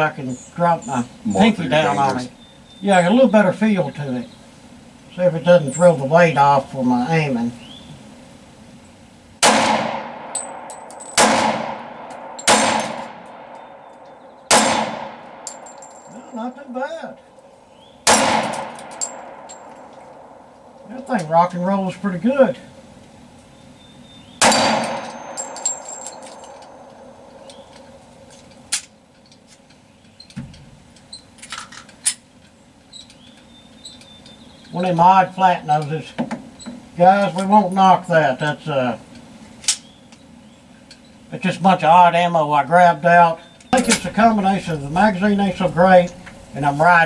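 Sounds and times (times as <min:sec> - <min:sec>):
pistol shots with echo: 0:09.4 - 0:13.8, 0:14.5 - 0:15.7, 0:18.0 - 0:20.4, 0:24.4 - 0:27.7
bullets pinging steel targets: 0:09.4 - 0:16.4, 0:18.0 - 0:21.3, 0:24.4 - 0:28.8, 0:43.7 - 0:46.3
pistol metallic clicks: 0:24.4 - 0:29.4.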